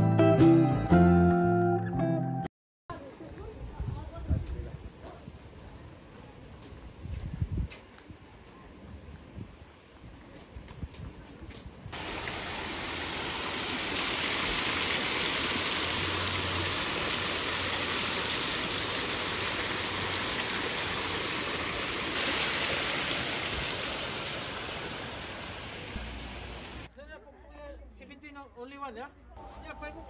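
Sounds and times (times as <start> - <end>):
water splashing over rocks: 12.0 - 26.9.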